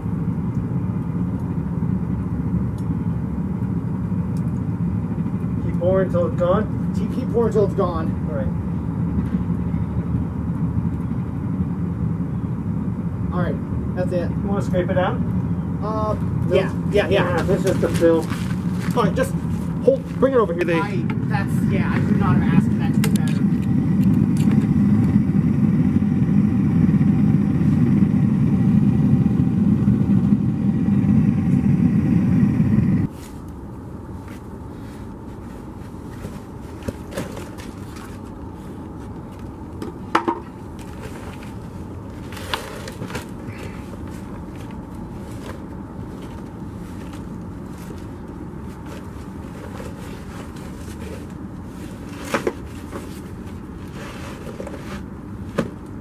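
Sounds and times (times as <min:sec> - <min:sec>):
steady low rumble: 0:00.0 - 0:56.0
sand scraping: 0:17.0 - 0:20.4, 0:48.7 - 0:55.1.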